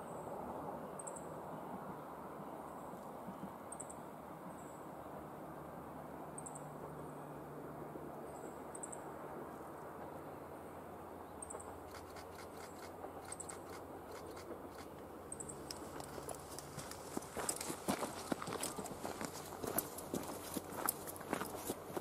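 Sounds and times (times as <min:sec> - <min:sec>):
distant diesel railcar drone: 0:00.0 - 0:22.0
sharp clicks of railcar: 0:11.4 - 0:18.8.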